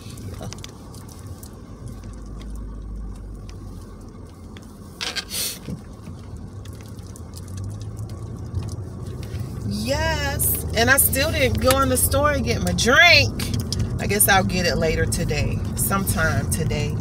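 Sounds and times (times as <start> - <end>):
car engine rumble: 0.0 - 17.0
brief hissing bursts: 5.3 - 5.7.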